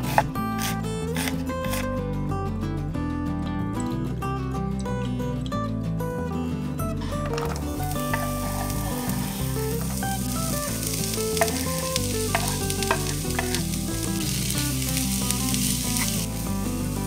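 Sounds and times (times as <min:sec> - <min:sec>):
spatula clicks and scrapes: 0:00.0 - 0:01.9, 0:07.3 - 0:16.4
onion sizzling in oil: 0:07.8 - 0:17.0.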